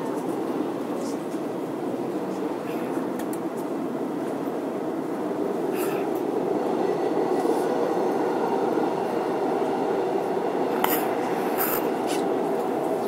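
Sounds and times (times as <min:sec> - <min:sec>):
subway train wheels rumbling: 0:00.0 - 0:13.0.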